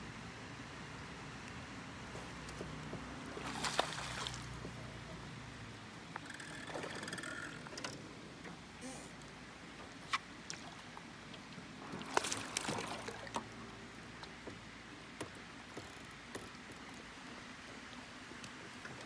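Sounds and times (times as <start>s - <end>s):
water washing against boat: 2.3s - 5.1s, 9.5s - 19.0s
fish splashing at surface: 3.4s - 4.5s
light clicks and knocks: 15.2s - 17.1s.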